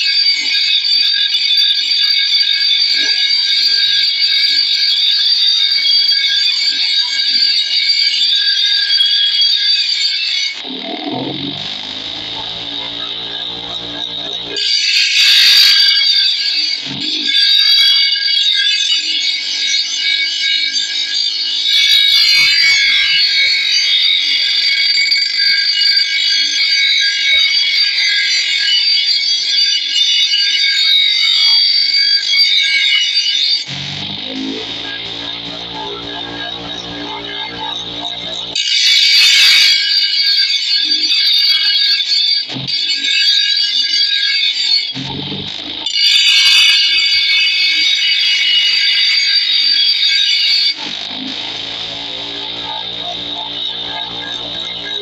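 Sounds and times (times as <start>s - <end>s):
grinder whining on steel: 0.0s - 55.0s
metal blade grinding on abrasive disc: 10.6s - 18.0s, 33.6s - 40.6s, 45.2s - 55.0s.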